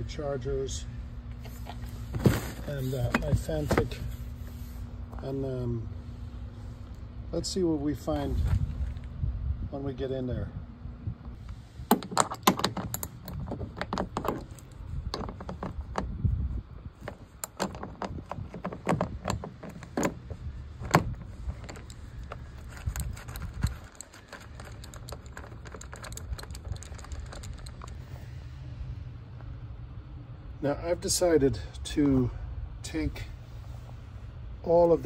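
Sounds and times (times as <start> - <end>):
steady low rumble: 0.0 - 35.0
clicks and clinks of bolts: 11.9 - 16.1, 20.9 - 28.0.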